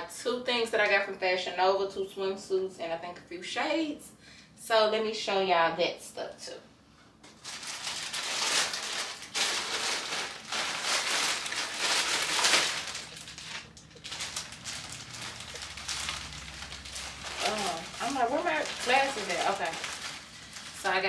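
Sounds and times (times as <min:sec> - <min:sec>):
plastic bag crinkling: 0:07.3 - 0:21.0.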